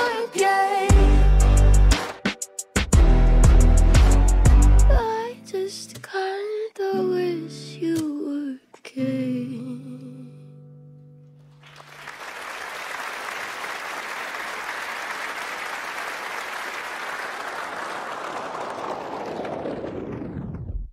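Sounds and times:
crowd applause: 11.6s - 20.7s.

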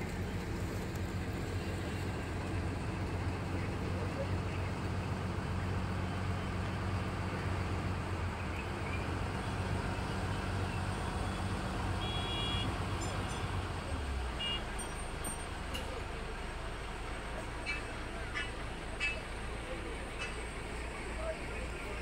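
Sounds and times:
diesel engine idling: 0.0s - 22.0s.

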